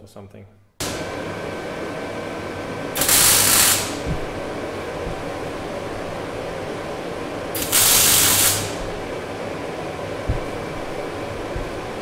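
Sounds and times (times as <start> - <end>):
welding machine hum: 0.8 - 12.0
welding arc burst: 3.0 - 4.1, 7.5 - 9.0.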